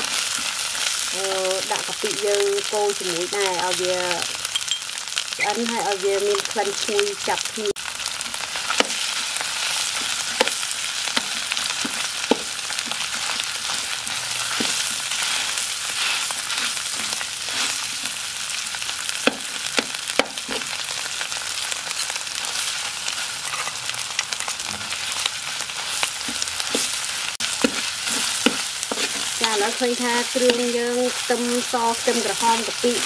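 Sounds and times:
food sizzling in hot oil: 0:00.0 - 0:33.0
metal spatula scraping wok: 0:23.2 - 0:23.9, 0:24.9 - 0:30.6.

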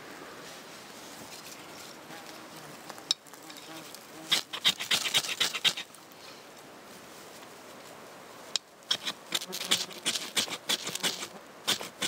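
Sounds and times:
knife scraping ferro rod: 0:04.3 - 0:05.9, 0:08.9 - 0:12.0.

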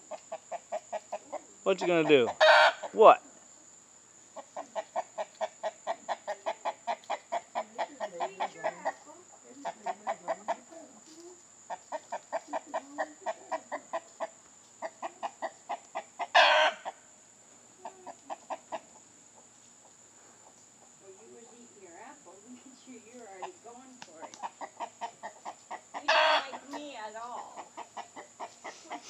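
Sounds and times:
chickens clucking: 0:00.0 - 0:29.0
chicken squawk: 0:00.1 - 0:03.2, 0:04.4 - 0:09.0, 0:11.7 - 0:17.0, 0:24.3 - 0:29.0.

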